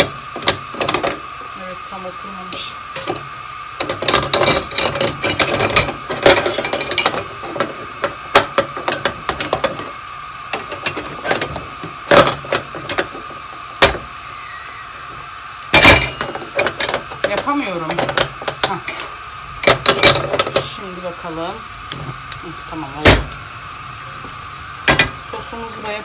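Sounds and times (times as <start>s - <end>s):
steady high hum: 0.0s - 26.0s.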